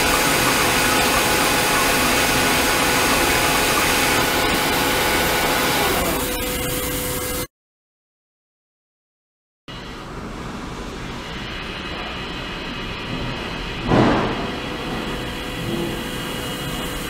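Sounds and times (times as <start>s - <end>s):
water jetting from a nozzle: 0.0s - 7.2s
steady machine hum: 0.0s - 7.5s, 9.7s - 17.0s.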